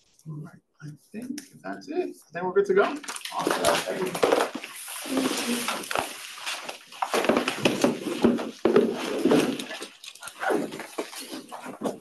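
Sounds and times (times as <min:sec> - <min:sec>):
cloth rubbing on chalkboard: 0:03.6 - 0:06.8.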